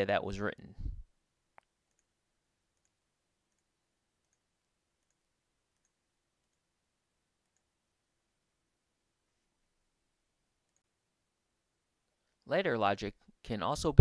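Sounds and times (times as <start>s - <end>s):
faint computer mouse clicks: 5.0s - 5.2s.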